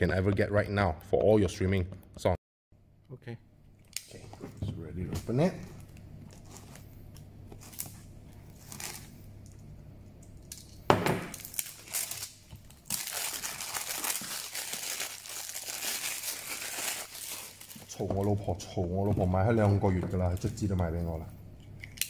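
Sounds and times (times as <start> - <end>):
plastic film crinkling: 5.9 - 6.9, 7.5 - 9.2, 11.3 - 21.1
knife slitting plastic wrap: 11.4 - 18.0.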